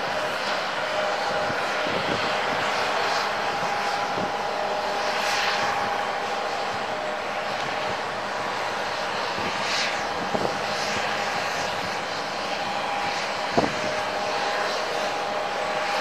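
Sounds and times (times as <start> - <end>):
jet engines whining at taxi: 0.0 - 16.0.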